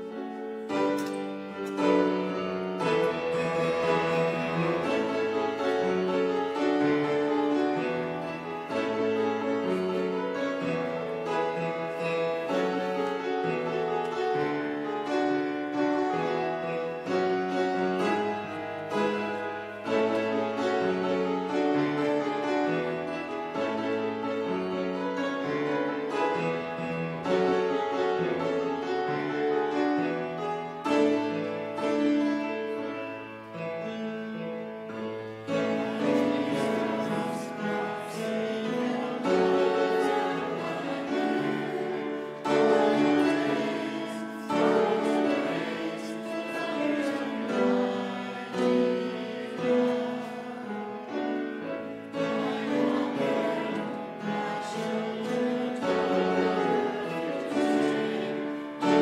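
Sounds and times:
slow piano-like keyboard music: 0.0s - 59.0s.

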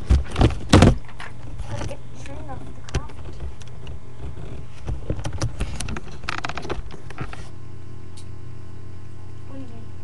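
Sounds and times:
low electrical hum: 0.0s - 10.0s.

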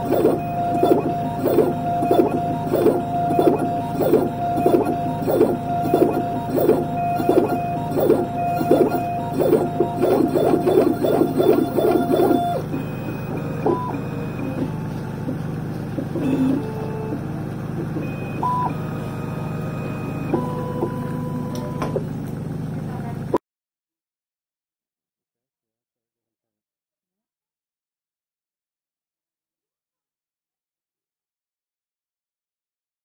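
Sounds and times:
milling machine whine and grinding: 0.0s - 22.4s.

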